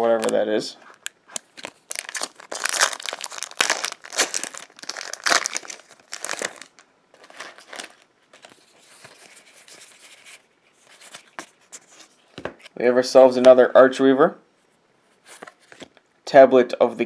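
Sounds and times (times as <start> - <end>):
foil wrapper crinkling: 0.0 - 9.2
cards rustling: 0.0 - 12.7.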